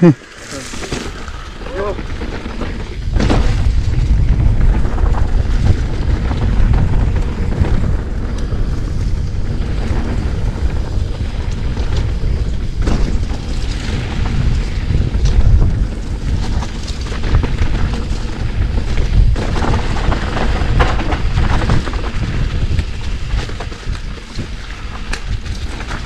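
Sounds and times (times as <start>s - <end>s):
tyres rumbling over dirt: 0.0s - 26.0s
wind buffeting microphone: 0.0s - 26.0s.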